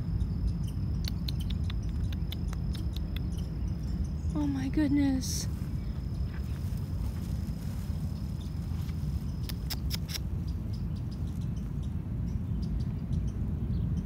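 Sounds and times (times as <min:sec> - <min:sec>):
insect trill: 0:00.0 - 0:13.4
low microphone rumble: 0:00.0 - 0:14.0
faint ticks: 0:00.9 - 0:04.1, 0:08.8 - 0:11.9
sharp clicks: 0:01.0 - 0:03.5, 0:09.4 - 0:10.3.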